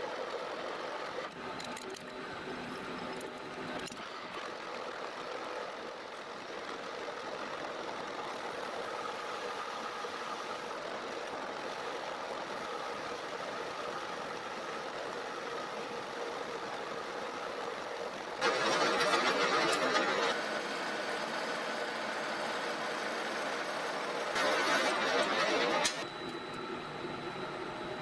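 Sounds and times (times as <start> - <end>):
metal lathe cutting: 18.4 - 26.1.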